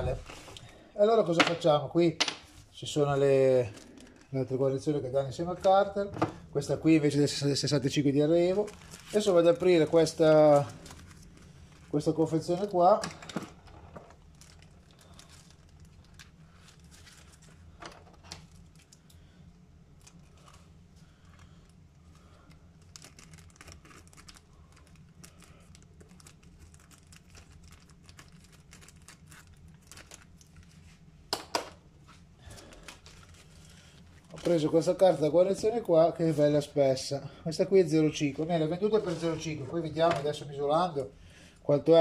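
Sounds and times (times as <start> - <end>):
plastic packaging crinkling: 2.5 - 6.1, 7.9 - 19.1, 19.9 - 31.1, 32.4 - 36.7.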